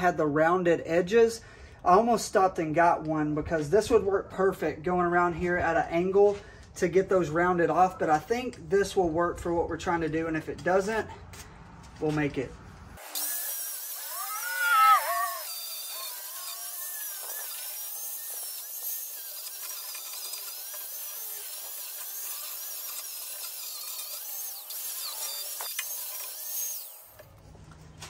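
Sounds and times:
angle grinder whining on metal: 0:13.0 - 0:27.4.

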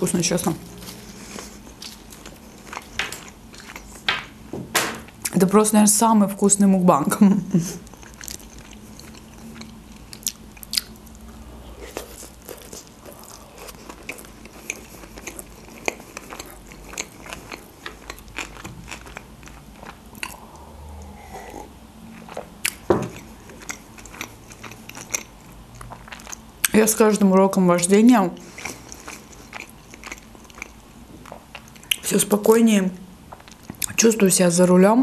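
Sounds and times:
person chewing food: 0:00.6 - 0:04.3, 0:07.8 - 0:26.7, 0:28.4 - 0:32.0.

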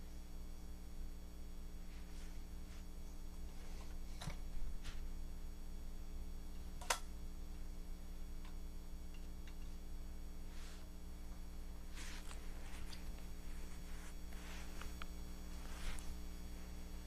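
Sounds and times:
low hum: 0:00.1 - 0:17.0
toy car rustling on carpet: 0:11.9 - 0:16.2.

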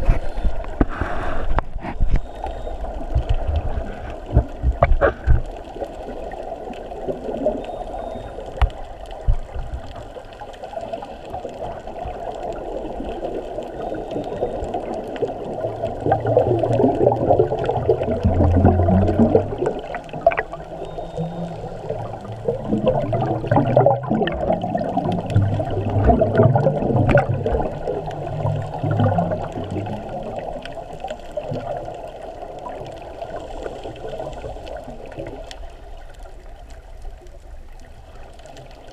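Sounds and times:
underwater rushing and bubbling: 0:00.0 - 0:38.9
small clicks: 0:06.8 - 0:16.1.

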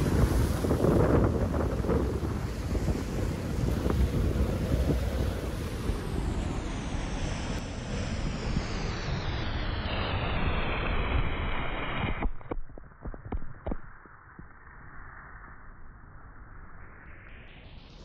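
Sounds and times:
surf breaking against rocks: 0:00.0 - 0:06.2
wind buffeting microphone: 0:00.0 - 0:07.6
wave splashing over rocks: 0:00.0 - 0:08.6.

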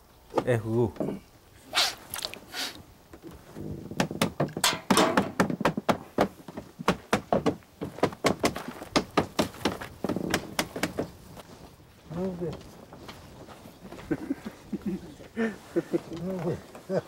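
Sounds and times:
wood-on-wood knocking: 0:03.9 - 0:11.2.

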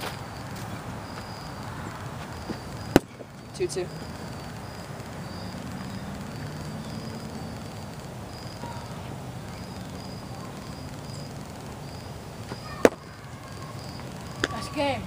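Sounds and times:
short insect chirps: 0:00.0 - 0:08.9
steady low hum: 0:00.0 - 0:15.0.

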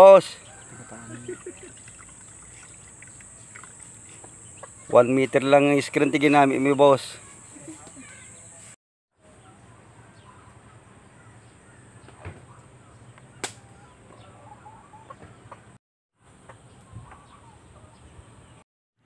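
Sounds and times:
faint bird calls: 0:00.4 - 0:05.1, 0:07.1 - 0:08.7.

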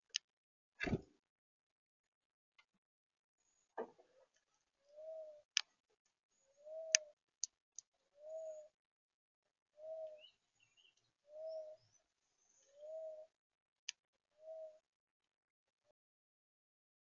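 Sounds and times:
dove cooing: 0:04.9 - 0:05.5, 0:06.6 - 0:07.2, 0:08.2 - 0:08.8, 0:09.8 - 0:10.3, 0:11.3 - 0:11.9, 0:12.7 - 0:13.3, 0:14.4 - 0:14.8.

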